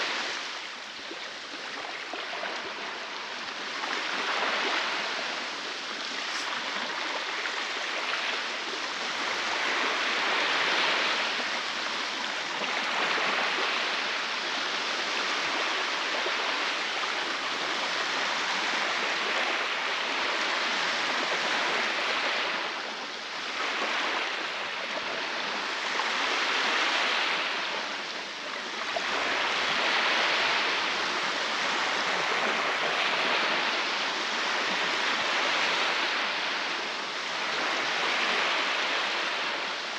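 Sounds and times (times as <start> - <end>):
waves breaking on beach: 0.0 - 39.9.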